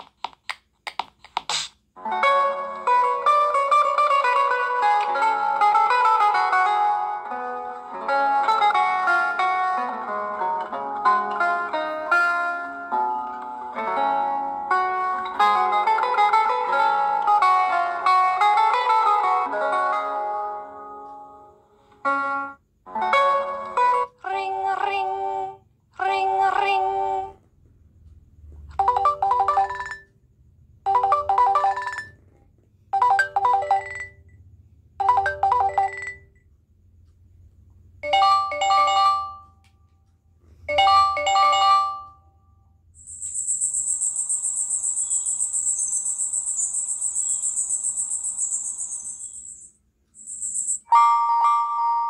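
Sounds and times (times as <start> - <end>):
melodic phone ringtone: 28.8 - 30.2, 30.9 - 32.3, 33.0 - 34.3, 35.0 - 36.4, 38.0 - 39.6, 40.7 - 42.3, 43.0 - 52.0
pulsing electronic trill: 43.0 - 50.9.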